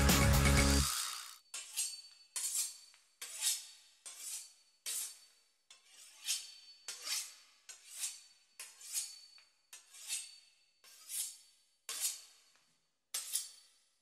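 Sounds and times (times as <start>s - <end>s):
knife sawing through pastry crust: 2.4s - 12.4s.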